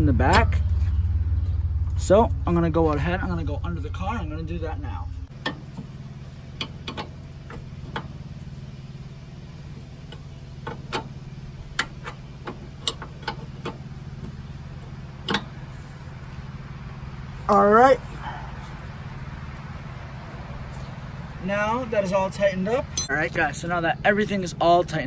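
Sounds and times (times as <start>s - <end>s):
low hum: 0.0s - 6.4s.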